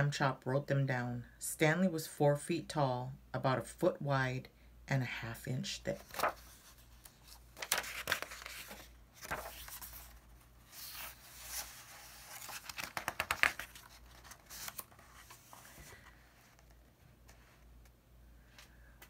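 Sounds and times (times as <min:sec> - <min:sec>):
book pages turning: 0:06.0 - 0:18.0.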